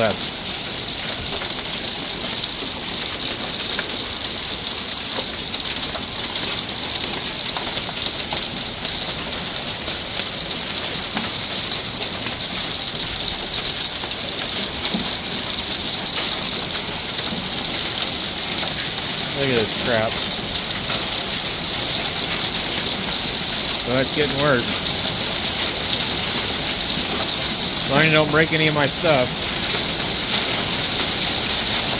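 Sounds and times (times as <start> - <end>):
falling rain and hail hiss: 0.0 - 31.9
hailstones striking and bouncing: 0.1 - 31.9.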